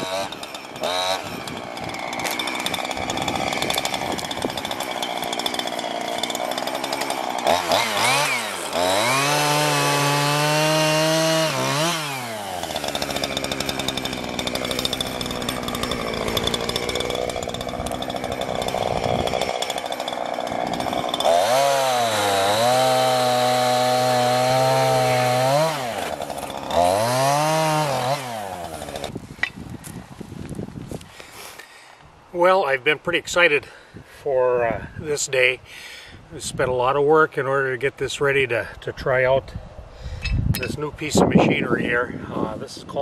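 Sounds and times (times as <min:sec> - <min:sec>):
chainsaw revving and cutting: 0:00.0 - 0:29.2.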